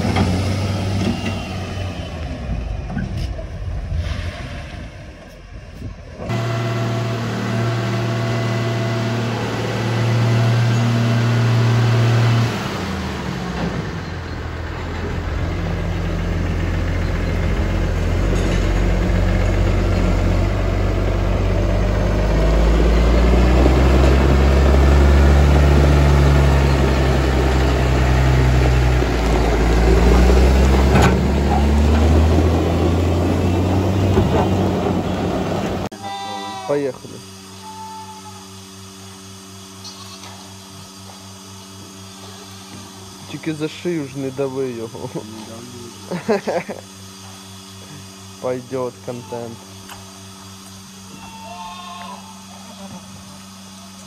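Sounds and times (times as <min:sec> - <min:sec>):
tractor diesel engine under load: 0:00.0 - 0:04.1, 0:05.2 - 0:35.9.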